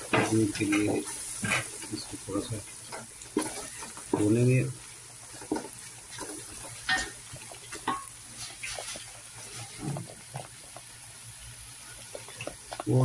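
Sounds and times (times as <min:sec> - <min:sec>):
faint sizzle: 0:00.0 - 0:13.0
spatula scraping pot: 0:00.1 - 0:02.1, 0:02.9 - 0:04.3, 0:05.3 - 0:10.8.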